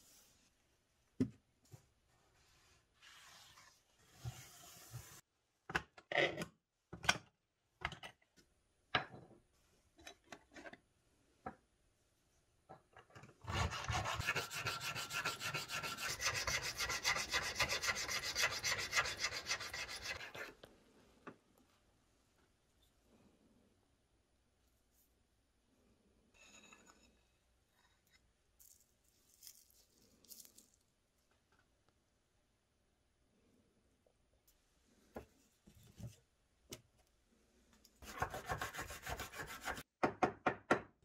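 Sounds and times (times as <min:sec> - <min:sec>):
needle file rasping in wood: 0:13.5 - 0:20.5, 0:38.0 - 0:39.8.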